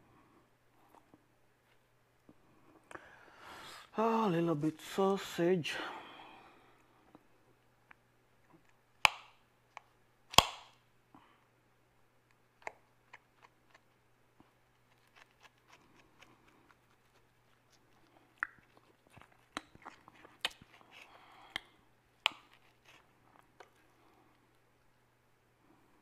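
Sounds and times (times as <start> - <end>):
faint chewing: 12.2 - 25.1.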